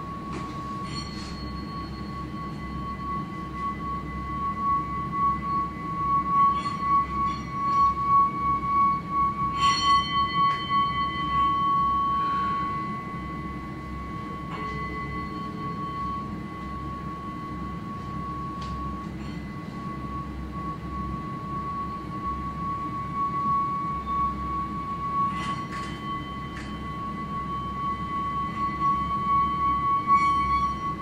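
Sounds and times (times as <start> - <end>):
singing bowl ringing tone: 0.0 - 31.0.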